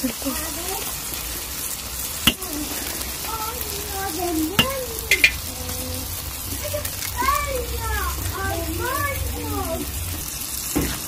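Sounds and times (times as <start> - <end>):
food sizzling in a pan: 0.0 - 11.0
sharp pops: 2.0 - 5.8.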